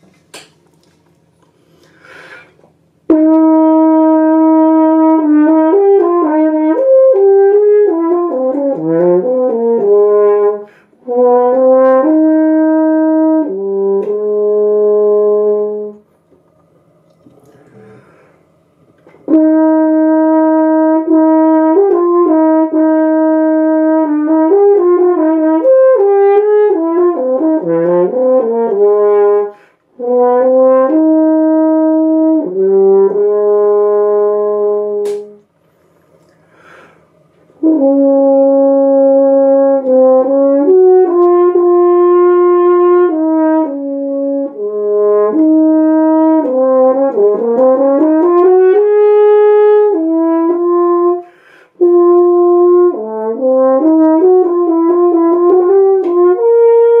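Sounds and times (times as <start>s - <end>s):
french horn playing: 3.0s - 16.1s, 17.4s - 35.5s, 36.7s - 57.0s
sharp click: 35.0s - 35.4s.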